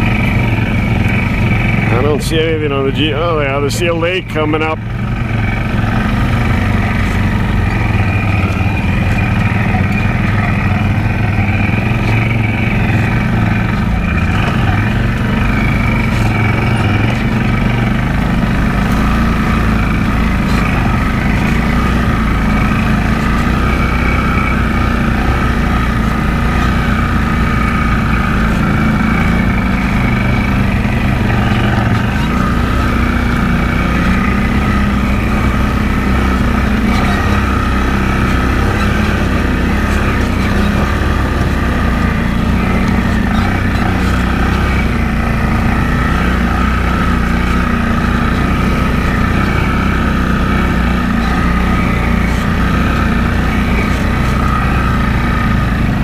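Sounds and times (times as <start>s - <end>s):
quad bike engine running: 0.0s - 56.0s.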